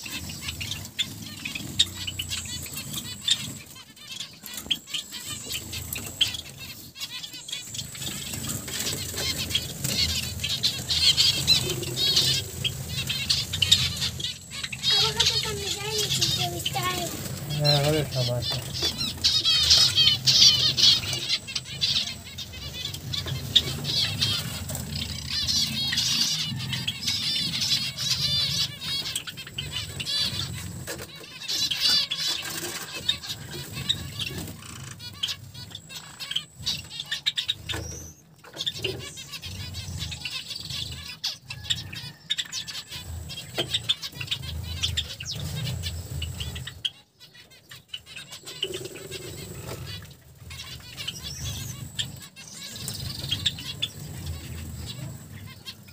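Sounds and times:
finches chirping: 0.0 - 55.9.

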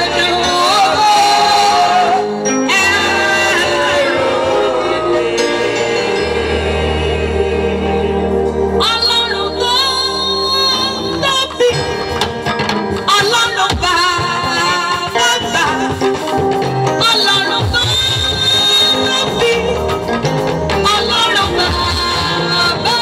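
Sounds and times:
choir singing: 0.0 - 9.7
drums: 0.0 - 23.0
keyboard: 0.0 - 23.0
woman singing lead: 0.0 - 23.0.

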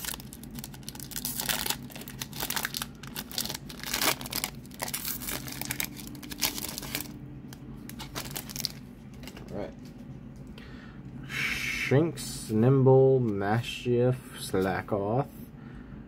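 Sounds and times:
foil wrapper tearing and crinkling: 0.0 - 7.2, 7.9 - 9.6.

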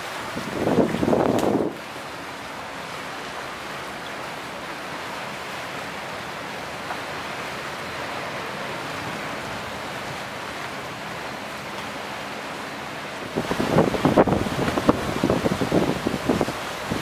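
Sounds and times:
wind on microphone: 0.0 - 1.9, 13.2 - 17.0
waves washing: 0.0 - 17.0.

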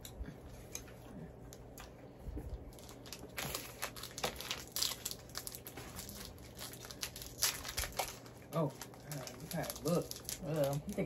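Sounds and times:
plastic wrappers crinkling: 2.5 - 11.0.

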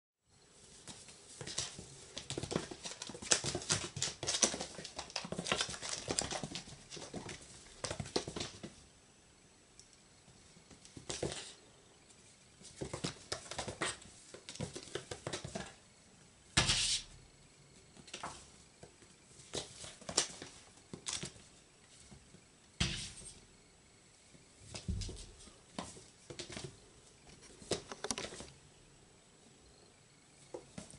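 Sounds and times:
kitten claws scrabbling on wood floor: 1.4 - 8.6.

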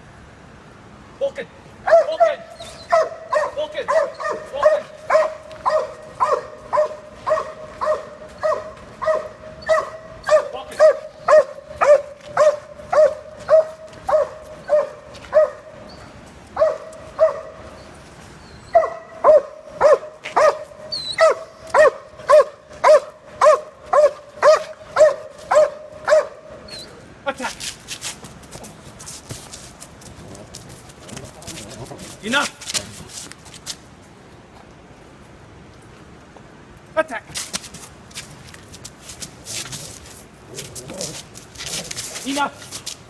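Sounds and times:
large dog barking: 1.8 - 15.8, 16.6 - 17.6, 18.7 - 26.6.

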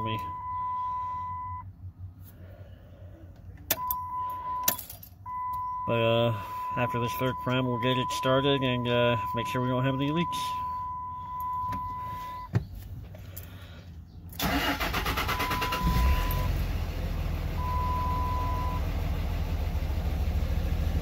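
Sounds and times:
electronic dash beeps: 0.0 - 1.7, 3.7 - 12.5, 14.7 - 16.6, 17.6 - 18.8
diesel engine idling: 0.0 - 21.0
starter cranking diesel engine: 14.3 - 21.0.

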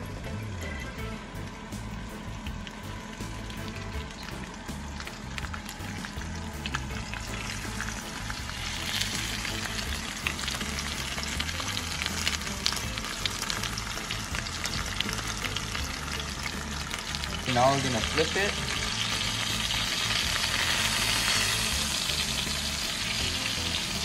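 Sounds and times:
fish sizzling in oil: 1.5 - 24.0.

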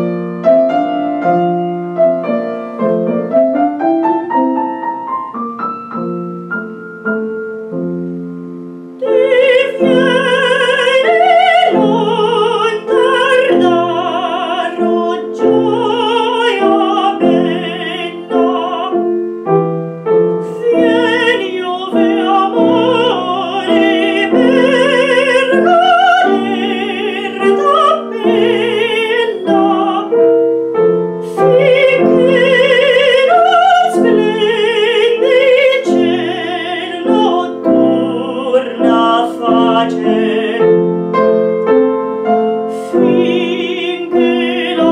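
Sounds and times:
piano accompaniment: 0.0 - 44.9
woman singing operatically: 9.0 - 19.2, 20.4 - 30.4, 31.2 - 41.0, 42.6 - 44.9.

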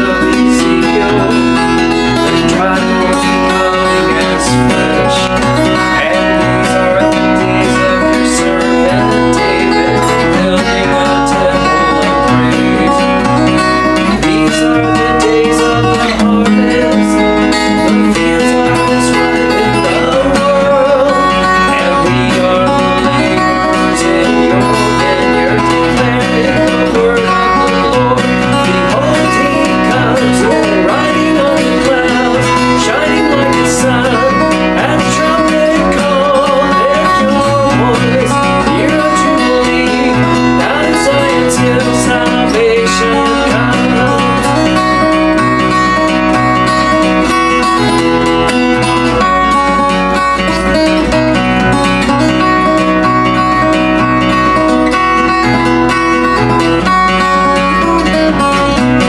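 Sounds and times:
man singing worship song: 0.0 - 46.5
acoustic guitar strumming: 0.0 - 59.0.

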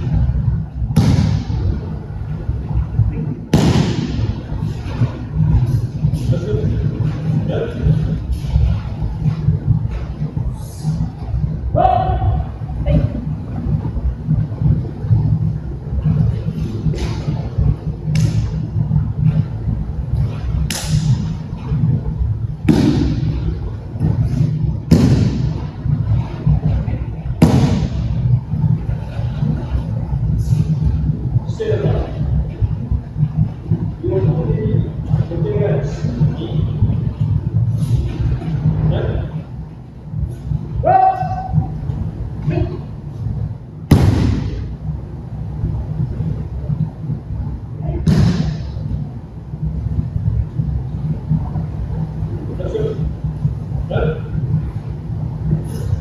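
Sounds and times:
low hum: 0.0 - 56.0
slap on mat: 0.9 - 1.6, 3.5 - 4.3, 18.1 - 18.6, 20.6 - 21.3, 22.6 - 23.4, 24.9 - 25.6, 27.4 - 28.1, 43.9 - 44.7, 48.0 - 48.7
body slamming onto mat: 1.0 - 1.6, 43.9 - 44.6, 48.1 - 48.7
bodies thudding on a mat: 27.4 - 28.1, 43.9 - 44.7.

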